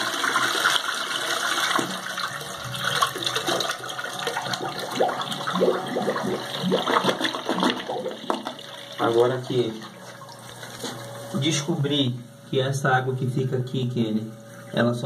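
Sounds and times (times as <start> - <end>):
toilet flushing: 0.0 - 11.1.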